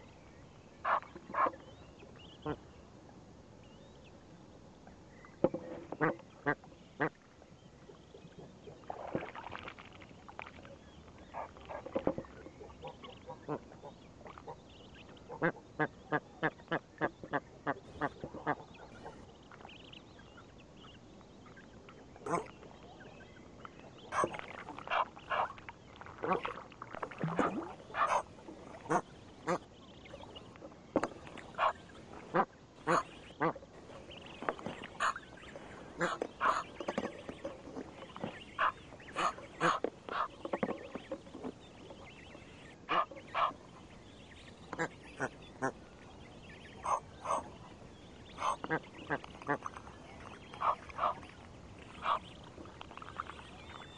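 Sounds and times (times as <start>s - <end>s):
geese calling: 27.9s - 29.6s, 31.5s - 33.6s, 35.0s - 37.4s, 38.5s - 40.4s, 42.9s - 43.6s, 46.7s - 47.6s, 48.4s - 49.7s, 51.9s - 52.3s
faint high-pitched peeps: 31.4s - 53.9s.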